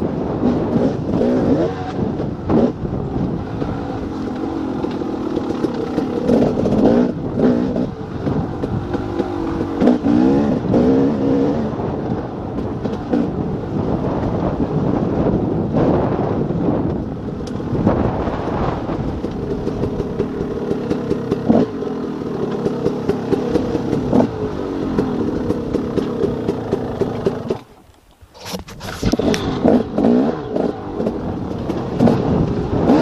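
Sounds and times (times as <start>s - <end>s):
dirt bike engine: 0.0s - 33.0s
knocks and rattles from bumps: 19.0s - 33.0s.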